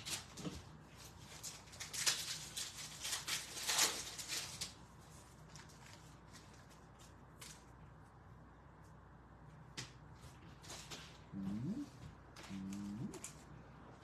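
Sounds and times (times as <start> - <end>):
foil wrappers crinkling: 0.0 - 7.8.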